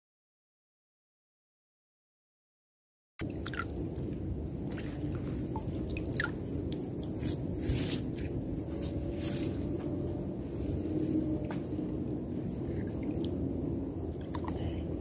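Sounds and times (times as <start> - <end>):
water dripping: 3.2 - 7.2, 12.9 - 13.4
low rush of water: 3.2 - 8.2
wet squishing: 3.2 - 8.3.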